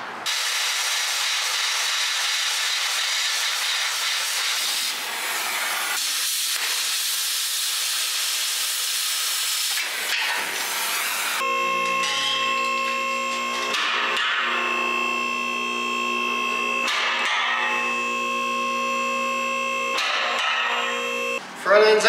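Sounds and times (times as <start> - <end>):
cutting torch hissing: 0.3 - 11.4.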